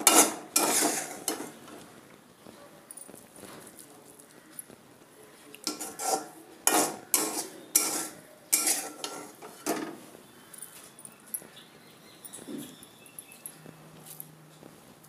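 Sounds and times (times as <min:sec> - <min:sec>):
metal spoon scraping metal plate: 0:00.0 - 0:01.7, 0:05.6 - 0:10.0.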